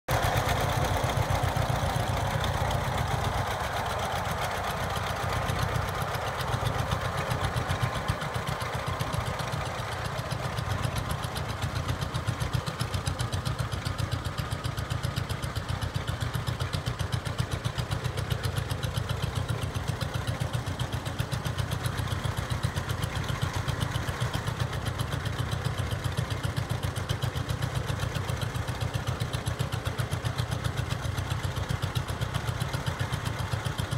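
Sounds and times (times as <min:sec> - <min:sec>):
tractor engine popping exhaust: 0:00.1 - 0:33.9.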